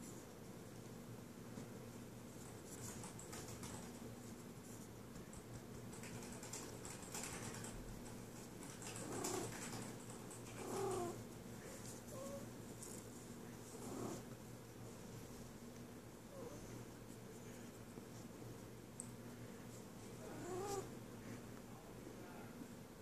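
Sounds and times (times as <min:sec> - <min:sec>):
fingers scratching cat fur: 0:08.7 - 0:11.2, 0:13.7 - 0:14.3, 0:20.1 - 0:20.9.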